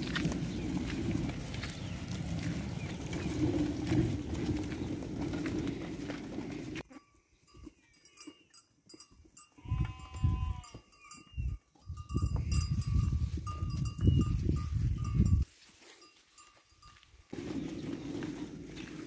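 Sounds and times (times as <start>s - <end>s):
sheep bleating: 9.6s - 10.8s.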